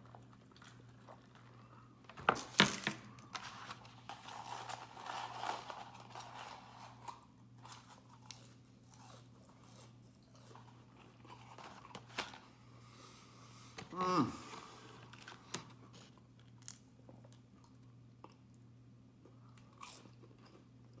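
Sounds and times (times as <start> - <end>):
chewing and crunching: 0.0 - 2.0, 3.9 - 12.4, 15.2 - 21.0.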